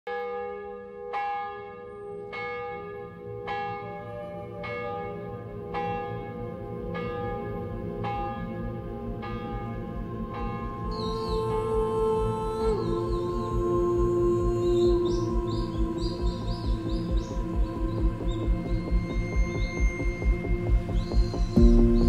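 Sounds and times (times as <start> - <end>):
church bell tolling: 0.1 - 11.2.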